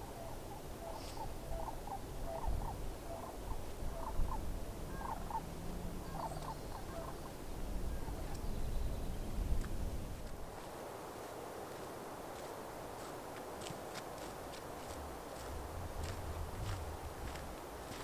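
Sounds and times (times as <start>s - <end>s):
low wind rumble: 0.0s - 18.0s.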